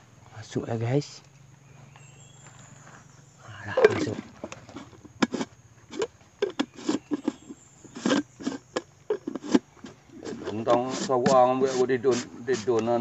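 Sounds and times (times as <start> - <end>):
plastic jar scrapes and knocks: 3.7 - 13.0.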